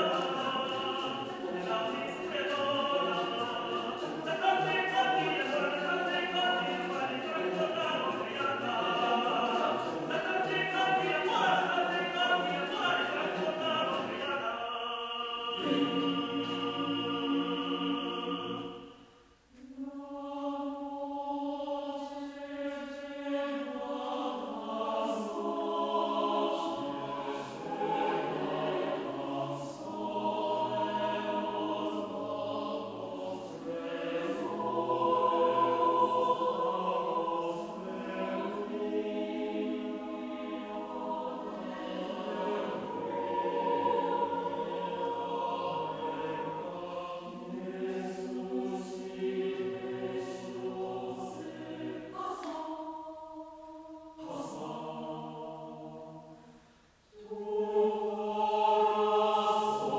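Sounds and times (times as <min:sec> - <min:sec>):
mixed choir singing a cappella: 0:00.0 - 0:59.9.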